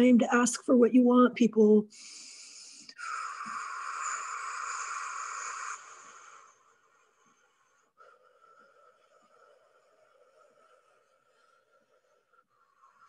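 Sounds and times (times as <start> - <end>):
woman blowing out breath: 2.0 - 7.4.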